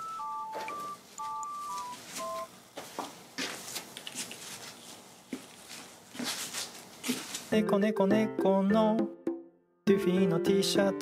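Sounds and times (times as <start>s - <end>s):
telephone keypad tones: 0.0s - 2.5s.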